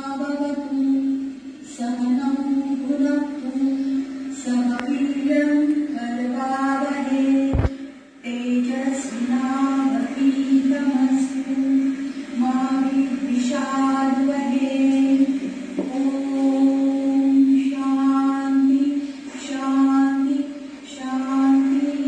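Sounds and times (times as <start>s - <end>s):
person chanting mantra: 0.0s - 22.0s
click: 4.7s - 5.0s.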